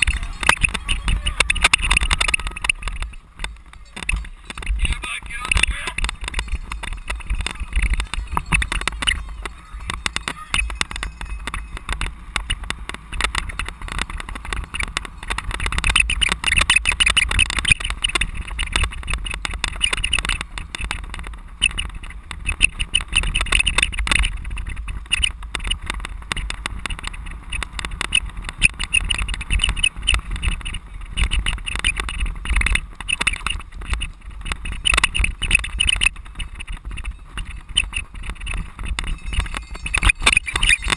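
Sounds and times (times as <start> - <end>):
bike rattling and knocking: 0.0 - 40.9
tyres on dirt: 0.0 - 40.9
wind rumble on microphone: 0.0 - 40.9.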